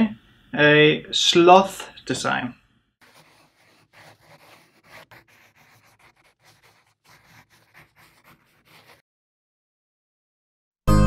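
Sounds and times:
pencil sketching on paper: 3.0 - 9.0.

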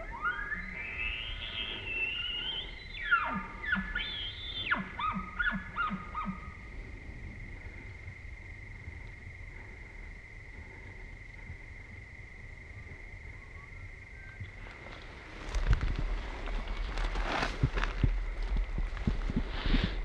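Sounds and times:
elk bugling: 0.0 - 15.6.

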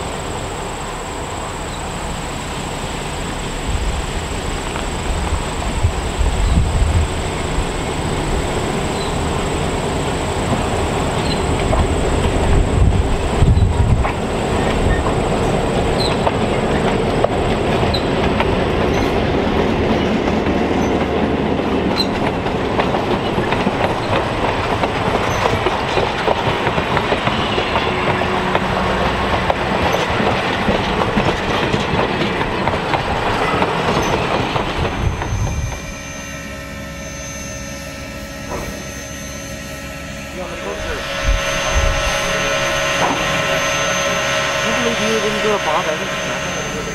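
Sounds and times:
diesel locomotive engine running: 0.0 - 46.9
train wheels clicking over rail joints: 4.2 - 36.2, 40.5 - 46.9
train wheels squealing: 5.4 - 21.2, 21.9 - 22.3, 23.0 - 29.0, 32.6 - 46.9
steady hum with tones: 36.0 - 46.9.

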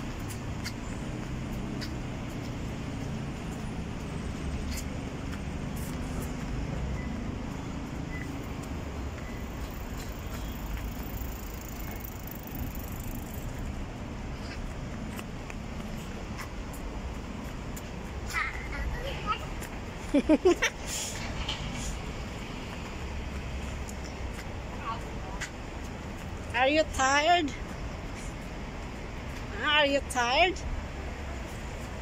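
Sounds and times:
road traffic rumble: 0.0 - 32.0.

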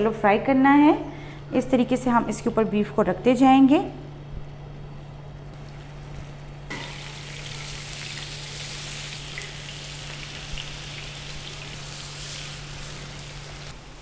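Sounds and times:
meat sizzling on a griddle: 6.7 - 14.0.

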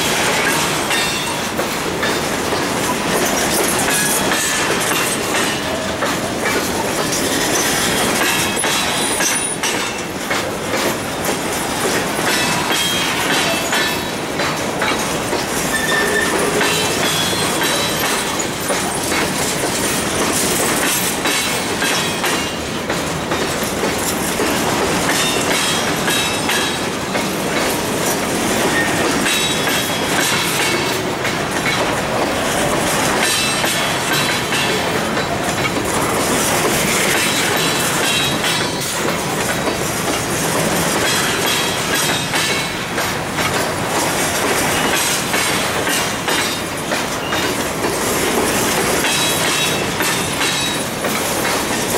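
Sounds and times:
freight train wheels rumbling: 0.0 - 51.9
faint high wheel squeal: 15.7 - 18.4.

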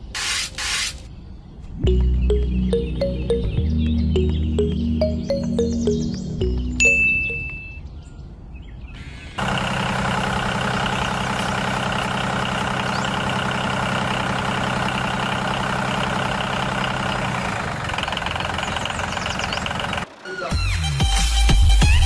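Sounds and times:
short ringing tone: 6.8 - 7.8
diesel engine idling: 9.4 - 21.4.

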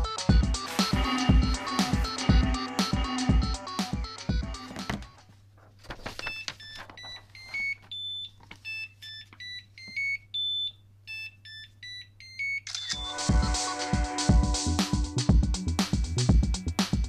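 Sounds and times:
buzzer beeping a tune: 9.8 - 15.3.

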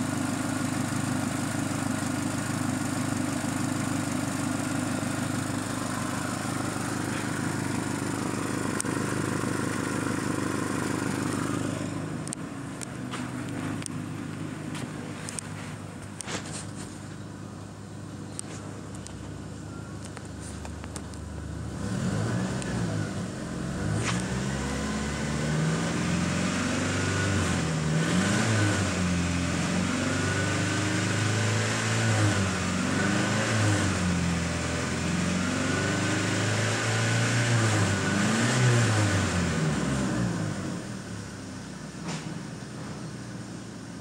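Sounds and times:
car engine idling and revving: 0.0 - 44.0.

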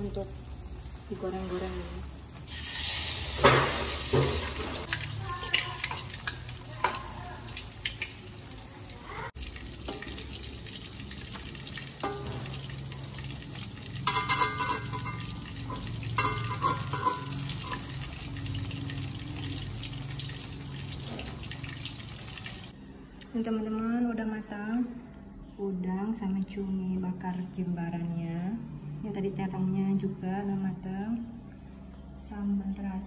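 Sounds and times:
fritters sizzling in oil: 0.0 - 22.7
metal spatula scraping wok: 14.0 - 17.9.

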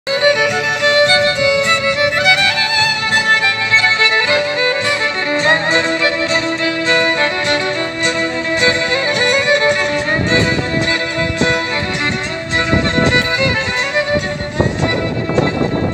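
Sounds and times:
violin melody: 0.1 - 15.9.

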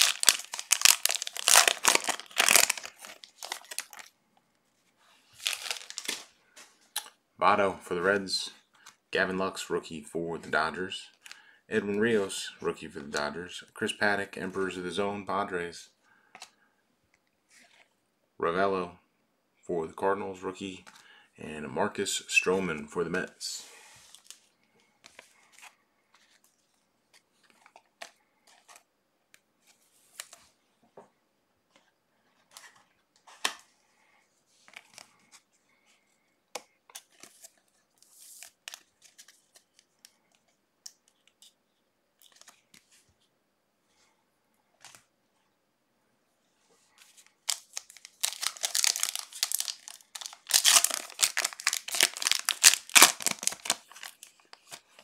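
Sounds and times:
card pack wrapper tearing: 0.0 - 4.1, 5.4 - 6.3, 47.4 - 55.0
trading cards rustling and clicking: 0.0 - 4.1, 5.4 - 7.2, 47.0 - 55.0.

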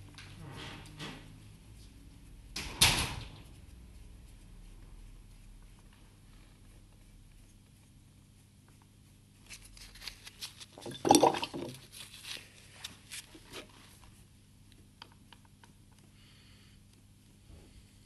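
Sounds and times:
low electrical hum: 0.0 - 18.0
painting gear rustling and clattering: 8.5 - 16.0.

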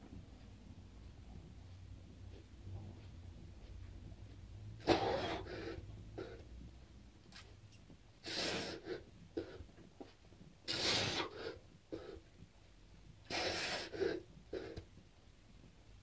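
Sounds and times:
man breathing hard: 4.8 - 6.5, 8.2 - 9.7, 10.7 - 12.3, 13.3 - 14.8.

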